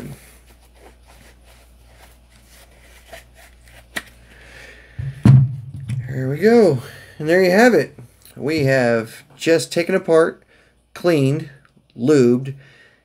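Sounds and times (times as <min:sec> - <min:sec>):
cloth rubbing on pistol: 0:00.0 - 0:04.1.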